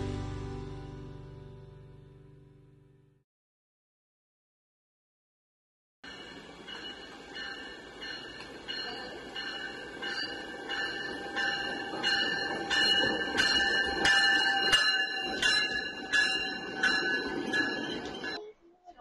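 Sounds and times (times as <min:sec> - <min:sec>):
train bell ringing: 0:06.0 - 0:18.5
train rumble: 0:06.1 - 0:18.4.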